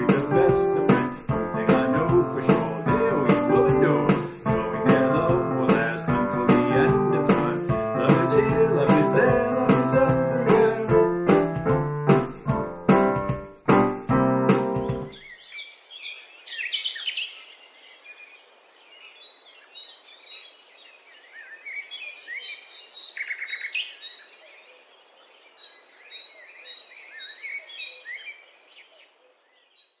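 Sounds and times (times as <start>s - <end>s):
songbirds chirping and singing: 0.0s - 11.2s, 14.8s - 30.0s.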